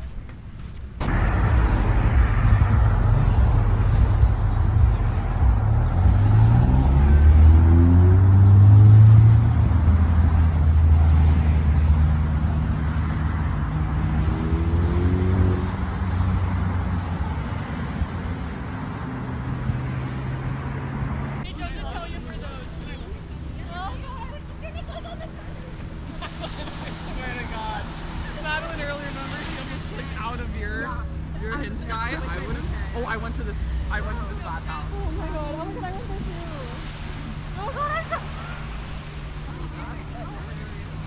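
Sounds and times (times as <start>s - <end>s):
vehicle engine revving: 1.0s - 21.5s.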